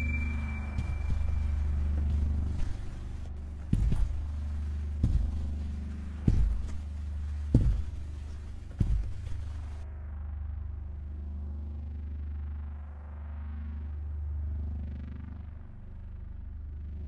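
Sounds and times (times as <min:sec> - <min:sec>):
deep thumps: 0:00.0 - 0:09.8
low drone: 0:00.0 - 0:17.0.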